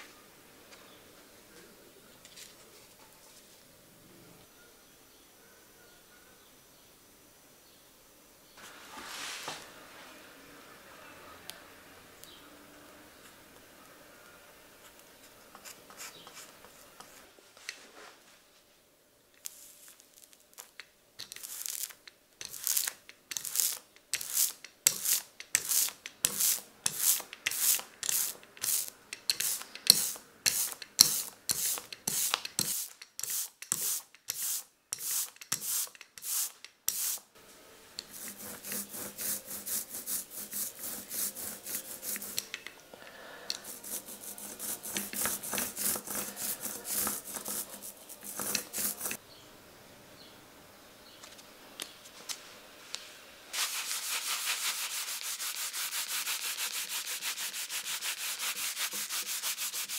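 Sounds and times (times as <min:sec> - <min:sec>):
hand tool rubbing rubber block: 0:21.2 - 0:37.2, 0:38.0 - 0:42.7, 0:43.5 - 0:49.2.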